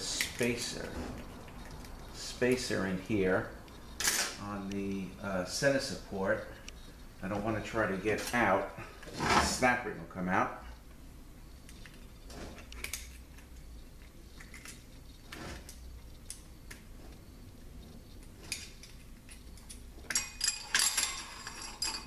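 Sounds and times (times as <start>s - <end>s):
metal clinking and scraping: 0.0s - 4.9s, 11.7s - 22.0s.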